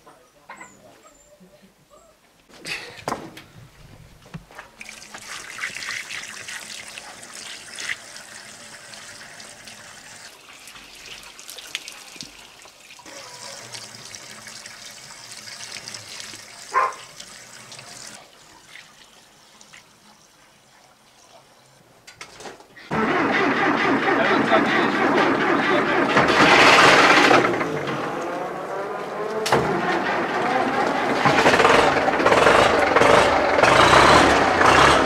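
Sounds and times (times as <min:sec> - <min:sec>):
water pouring and splashing: 0:04.6 - 0:21.8.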